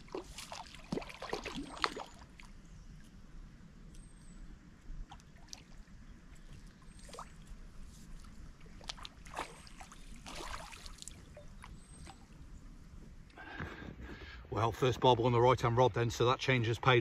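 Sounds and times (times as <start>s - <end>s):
river water splashing: 0.0s - 2.6s, 5.0s - 12.6s.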